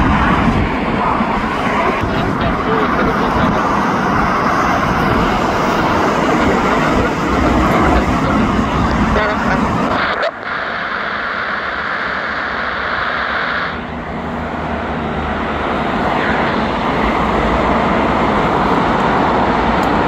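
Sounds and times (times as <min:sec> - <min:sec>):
jet engine rushing: 0:00.0 - 0:20.0.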